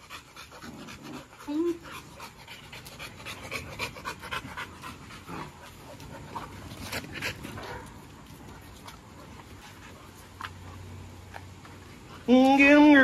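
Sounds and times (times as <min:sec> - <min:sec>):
dogs panting: 0:00.0 - 0:12.3.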